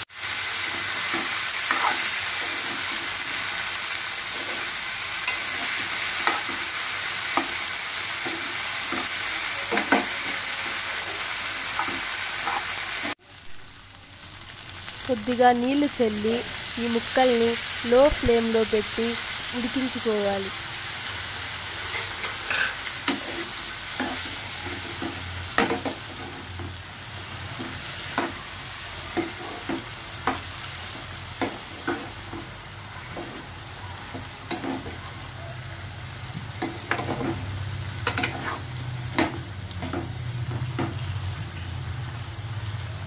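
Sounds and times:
potatoes sizzling in oil: 0:00.0 - 0:43.0
metal ladle scraping a pan: 0:21.9 - 0:25.3.

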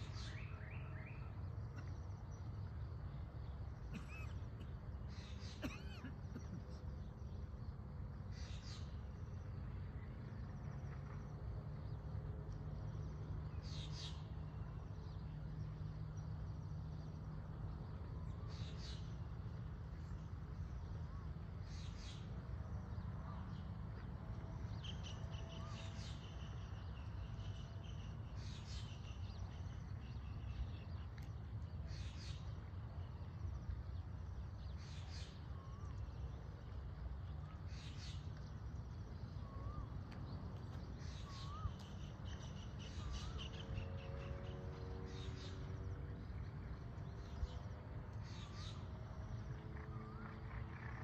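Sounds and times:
low rumble of outdoor ambience: 0:00.0 - 0:51.0.

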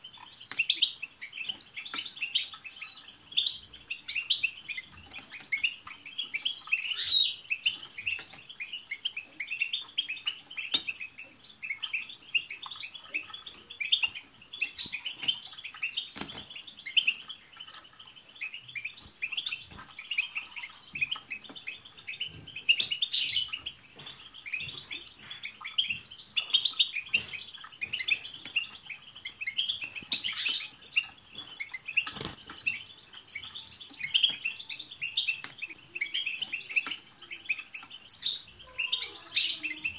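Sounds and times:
goldfinches twittering: 0:00.0 - 0:39.9.

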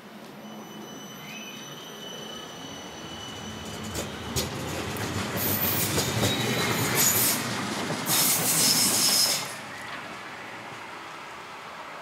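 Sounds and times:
tram wheels rumbling on rail: 0:00.1 - 0:12.0
high-pitched wheel squeal: 0:00.4 - 0:04.3
clacks over rail joints: 0:03.7 - 0:10.2.

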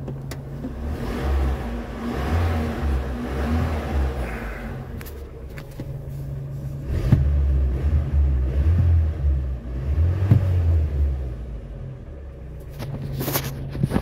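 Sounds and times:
car engine revving: 0:00.5 - 0:05.4, 0:06.5 - 0:12.4.

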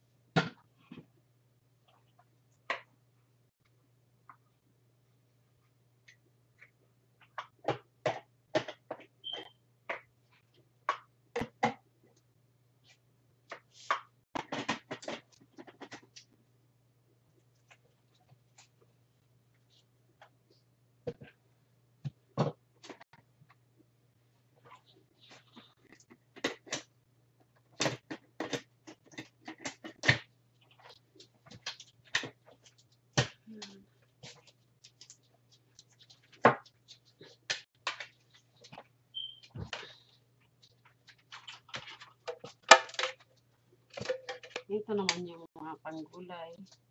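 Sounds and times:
plastic parts clicking and knocking: 0:27.5 - 0:33.4, 0:40.8 - 0:45.2
plastic clattering: 0:40.8 - 0:43.3, 0:43.9 - 0:44.7
plastic cups clicking and knocking: 0:40.8 - 0:45.2.

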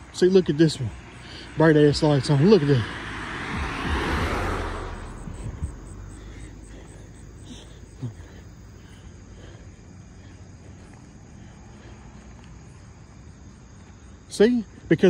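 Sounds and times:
crickets chirping: 0:00.0 - 0:15.0
car passing by: 0:00.5 - 0:08.2.

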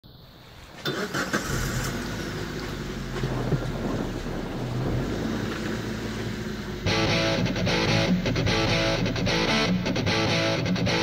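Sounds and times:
low steady hum: 0:00.1 - 0:10.4
wind buffeting microphone: 0:01.8 - 0:09.4.

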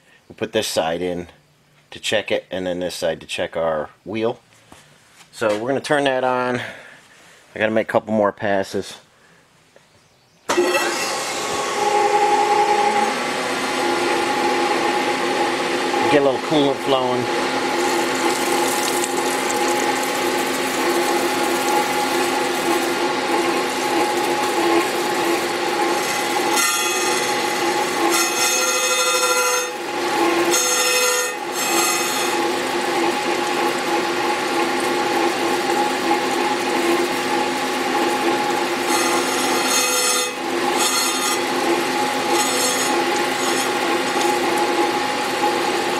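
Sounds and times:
grinding machine hum: 0:10.5 - 0:45.9
coolant spraying: 0:17.6 - 0:25.8.

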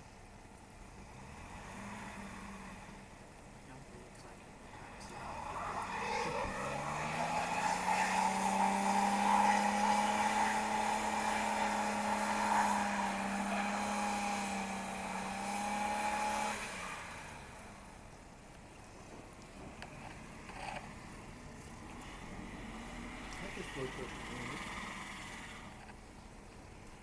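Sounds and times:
truck engine revving: 0:00.9 - 0:03.2, 0:04.6 - 0:18.1, 0:19.6 - 0:26.1
high whine: 0:03.7 - 0:26.3
wheels spinning in snow: 0:04.6 - 0:18.1, 0:18.9 - 0:27.0.

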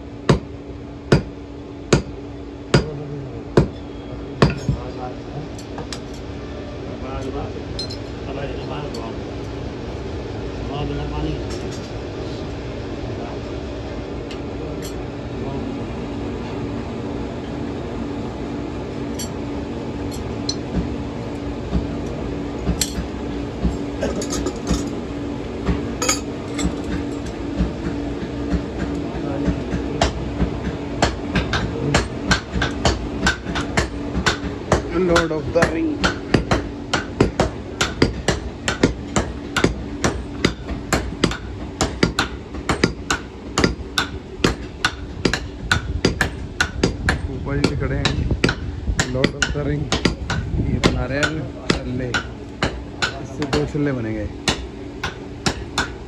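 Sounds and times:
steady low hum: 0:00.0 - 0:56.0
hammer striking iron on anvil: 0:00.3 - 0:00.5, 0:01.1 - 0:03.0, 0:03.6 - 0:04.8, 0:22.6 - 0:23.1, 0:26.0 - 0:27.4, 0:29.7 - 0:53.8, 0:54.4 - 0:56.0
iron tongs and rods clinking: 0:07.8 - 0:08.1, 0:26.0 - 0:27.2.

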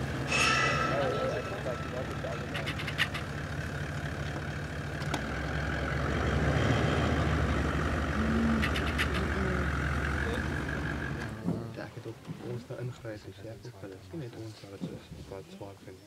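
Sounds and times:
truck engine running: 0:00.0 - 0:12.7.

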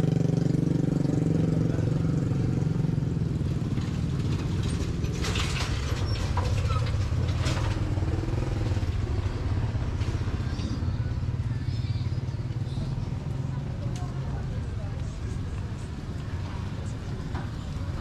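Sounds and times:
motorcycle engine running: 0:00.0 - 0:18.0
short clatters: 0:03.8 - 0:08.4.

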